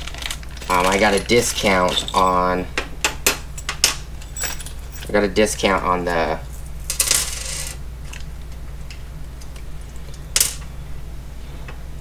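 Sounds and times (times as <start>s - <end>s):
small metal parts clinking: 0.0s - 2.5s, 3.6s - 5.2s
steady low hum: 0.0s - 12.0s.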